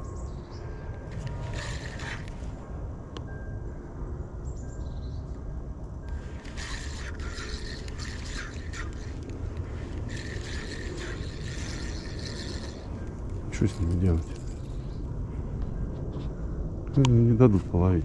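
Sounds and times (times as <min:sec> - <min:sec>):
fishing reel gears whirring: 0:01.0 - 0:02.6, 0:06.1 - 0:15.0.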